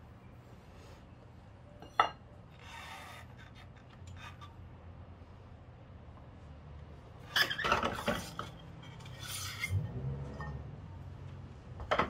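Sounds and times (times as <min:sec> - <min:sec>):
metal clank on concrete: 0:01.8 - 0:02.2.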